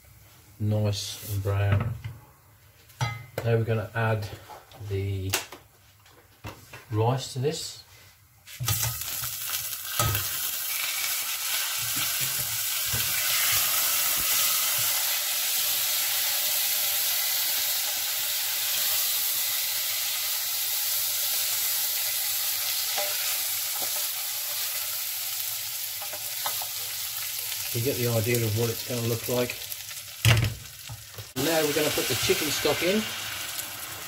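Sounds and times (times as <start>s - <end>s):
rice sizzling in oil: 8.6s - 34.0s.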